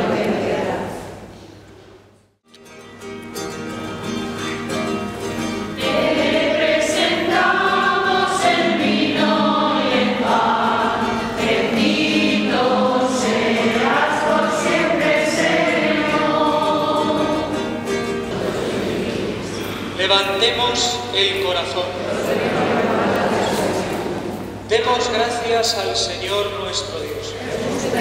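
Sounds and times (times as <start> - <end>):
mixed choir singing: 0.0 - 1.3, 5.8 - 19.7, 22.0 - 24.4
acoustic guitar: 0.0 - 28.0.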